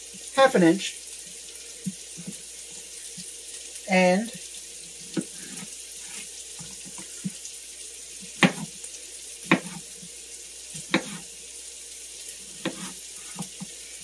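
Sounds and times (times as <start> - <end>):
vegetables sizzling in a skillet: 0.0 - 14.0
knife chopping on cutting board: 5.1 - 7.4, 8.4 - 8.7, 9.4 - 9.9, 10.8 - 11.3, 12.6 - 13.7.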